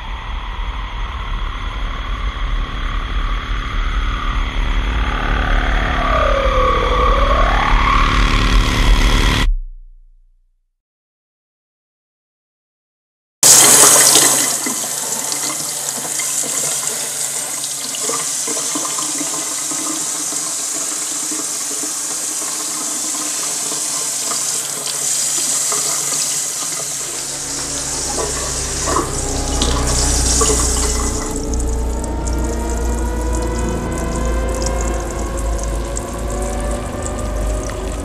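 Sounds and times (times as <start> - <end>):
low hum: 0.0 - 10.6, 26.9 - 38.0.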